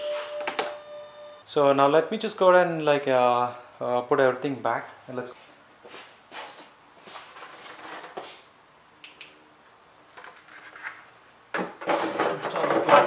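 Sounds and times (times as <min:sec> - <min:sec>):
plastic rubbing and clattering: 0:10.2 - 0:13.0.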